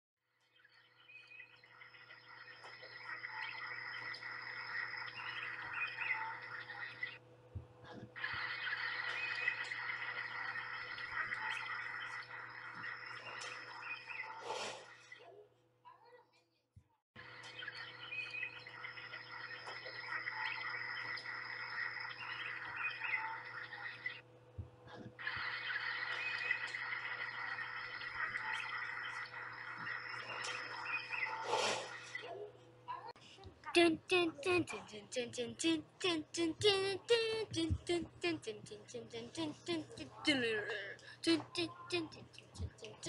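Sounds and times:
birds chirping: 0:17.2 - 0:24.2, 0:25.2 - 0:32.2.

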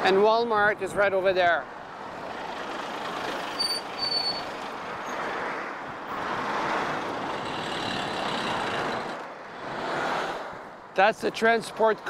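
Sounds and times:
passing traffic: 0:00.0 - 0:12.0
road noise: 0:00.0 - 0:12.0
bus engine idling: 0:02.2 - 0:04.9
brief high squeal: 0:03.6 - 0:04.5.

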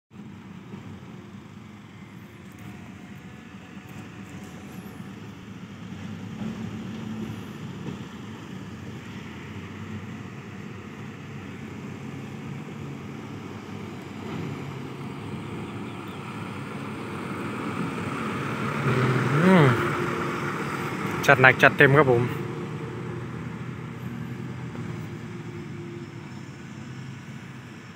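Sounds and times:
dump truck diesel engines: 0:00.1 - 0:27.9.

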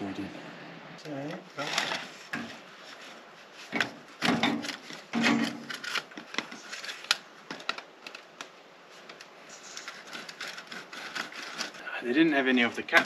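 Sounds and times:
plastic pipe scraping rustles: 0:09.0 - 0:11.9.

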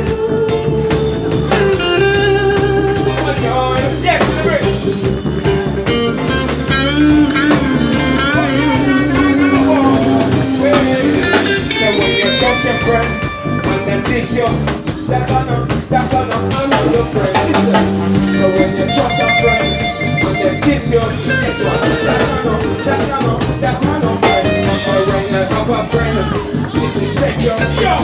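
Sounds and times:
drum kit: 0:00.0 - 0:28.0
electric guitars: 0:00.0 - 0:28.0
person singing into microphone: 0:06.7 - 0:28.0.

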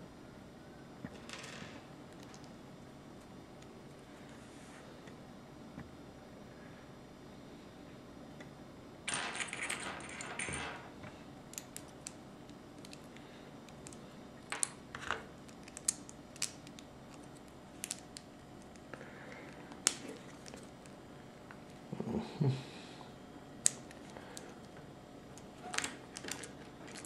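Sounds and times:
plastic pieces clattering: 0:25.7 - 0:27.0.

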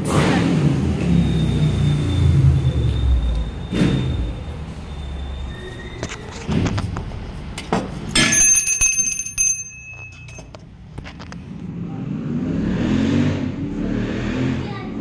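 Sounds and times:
hand bell ringing: 0:08.2 - 0:10.6.

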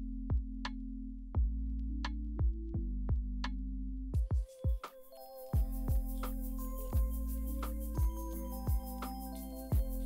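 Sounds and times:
electronic music: 0:04.2 - 0:10.0.

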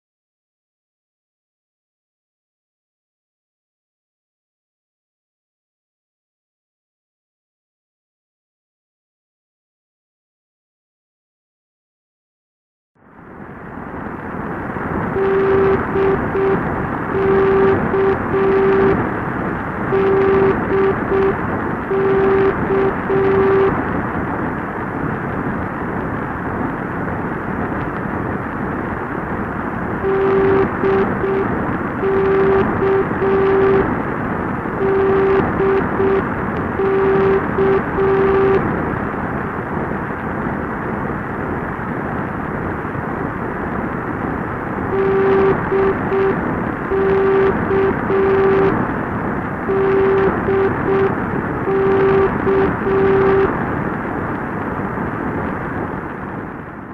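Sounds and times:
radio static hiss: 0:13.6 - 0:56.9
morse code beeping tone: 0:15.1 - 0:19.0, 0:19.9 - 0:23.8, 0:30.0 - 0:33.9, 0:34.8 - 0:38.6, 0:44.9 - 0:48.8, 0:49.7 - 0:53.5.

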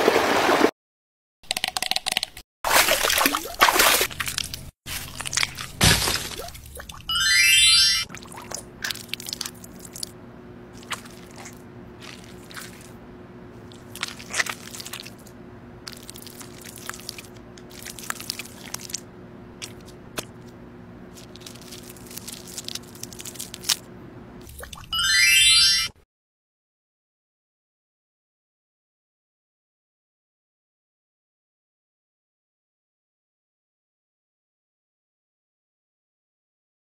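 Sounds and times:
steady low hum: 0:08.0 - 0:24.9.

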